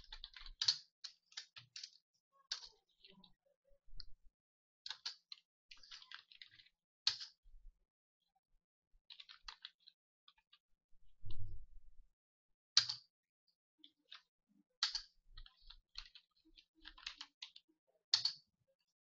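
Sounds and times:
keyboard typing: 9.1s - 10.6s.

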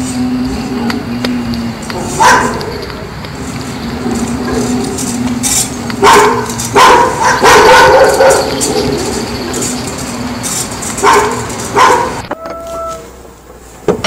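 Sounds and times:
dog barking loudly: 2.1s - 2.8s, 6.0s - 9.1s, 11.0s - 12.2s.

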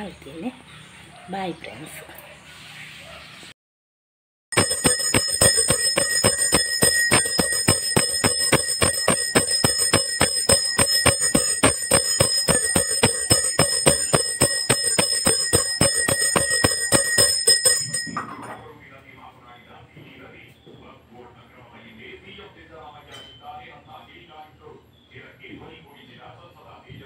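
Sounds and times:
hand bell ringing rapidly: 4.5s - 18.3s.

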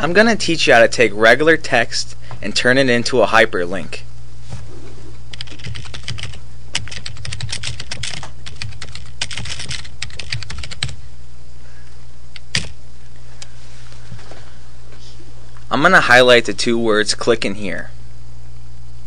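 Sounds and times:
steady low hum: 0.0s - 19.0s
computer keyboard typing: 5.3s - 11.0s, 12.4s - 12.7s.

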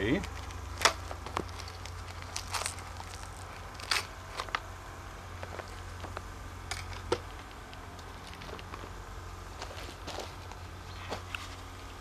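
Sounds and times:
steady low hum: 0.0s - 12.0s
metal and tape scraping: 0.1s - 4.6s.

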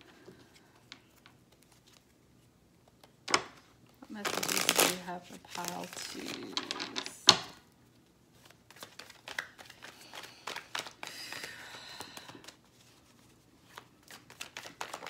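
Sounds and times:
cards being shuffled: 0.4s - 15.0s.

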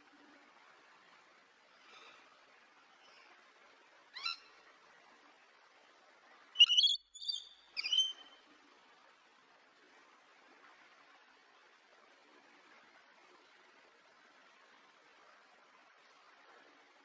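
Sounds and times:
faint steady hiss: 0.0s - 17.0s
lorikeet calling: 4.2s - 4.4s, 6.6s - 8.4s.

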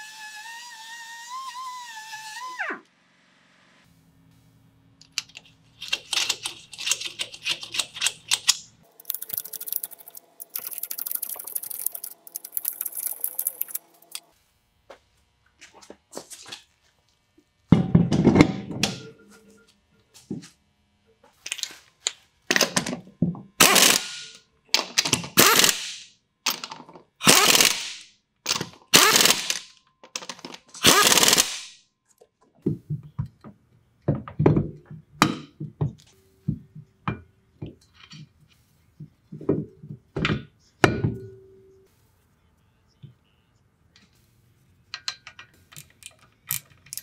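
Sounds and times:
impact wrench whirring: 23.6s - 24.4s, 25.4s - 26.0s, 27.2s - 29.7s, 30.8s - 31.7s.

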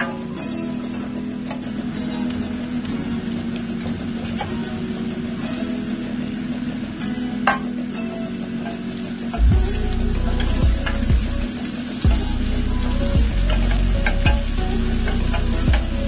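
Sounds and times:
food sizzling in oil: 0.0s - 16.0s
low hum: 9.3s - 16.0s.

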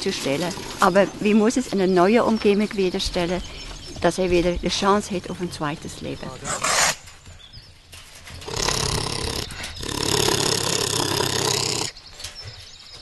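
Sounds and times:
badger growling harshly: 8.4s - 11.9s.

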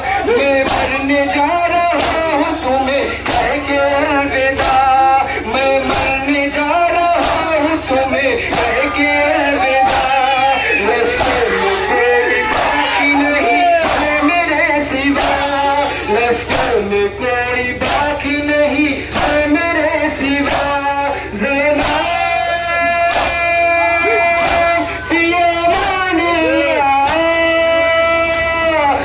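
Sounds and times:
men chanting in chorus: 0.0s - 29.0s
hands striking chests: 2.0s - 2.3s.

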